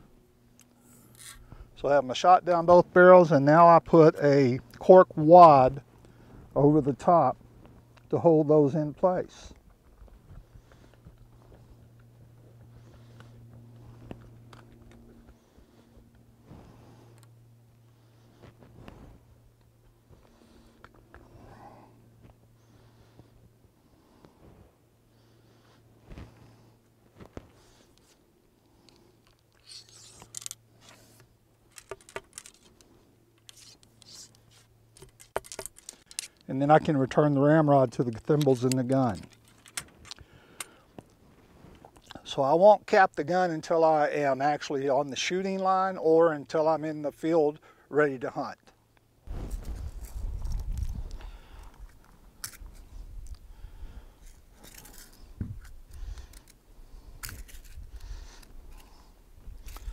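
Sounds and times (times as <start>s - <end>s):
wind rumble on microphone: 49.3s - 52.0s.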